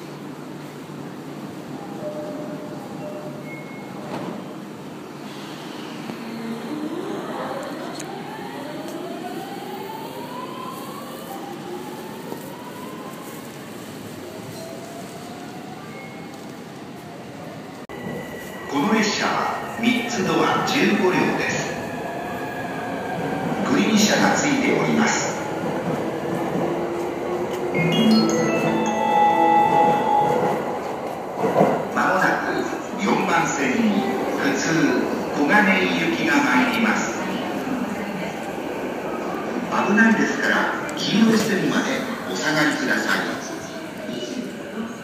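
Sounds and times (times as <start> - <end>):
platform hubbub: 27.7 - 30.6
electronic chime melody: 27.8 - 30.3.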